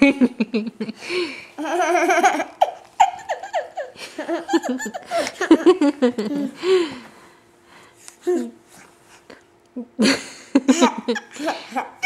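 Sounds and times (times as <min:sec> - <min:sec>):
toddler laughing and giggling: 0:01.6 - 0:06.6, 0:10.7 - 0:12.0.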